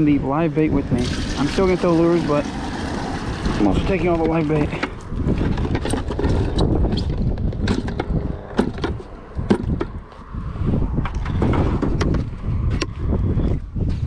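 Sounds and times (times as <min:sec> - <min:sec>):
water pouring into bucket: 0:00.8 - 0:04.0.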